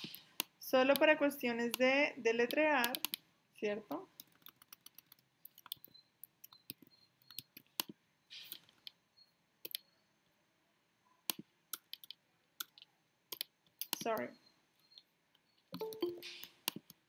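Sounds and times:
keyboard typing: 0:02.4 - 0:03.2, 0:04.2 - 0:09.0, 0:09.6 - 0:09.8, 0:11.3 - 0:14.3, 0:15.7 - 0:17.0
mouse clicks: 0:02.4 - 0:03.2, 0:04.2 - 0:09.0, 0:09.6 - 0:09.8.

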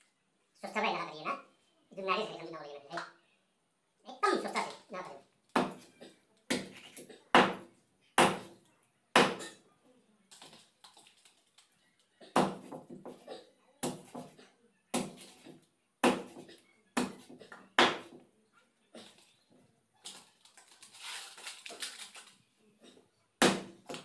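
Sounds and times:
knife chopping on wooden block: 0:05.6 - 0:05.9, 0:07.4 - 0:08.5, 0:09.2 - 0:09.6, 0:12.3 - 0:13.2, 0:13.8 - 0:18.2, 0:23.4 - 0:24.0.

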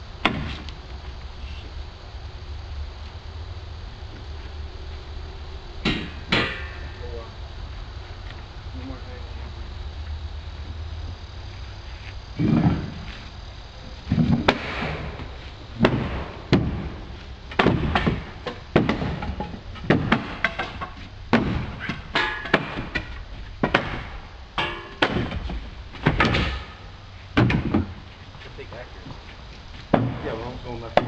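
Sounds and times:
heavy blows on wood: 0:14.1 - 0:28.2.

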